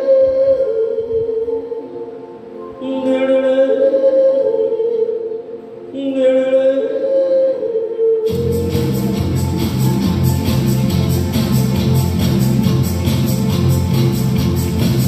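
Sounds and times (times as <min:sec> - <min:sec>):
sustained musical accompaniment: 0:00.0 - 0:15.0
man singing into a microphone: 0:02.8 - 0:08.9.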